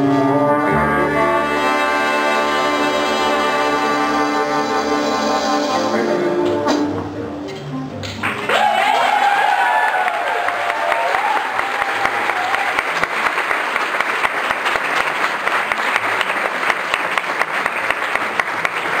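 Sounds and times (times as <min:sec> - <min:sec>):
held musical tone: 0:00.0 - 0:08.0
audience applause: 0:08.2 - 0:19.0.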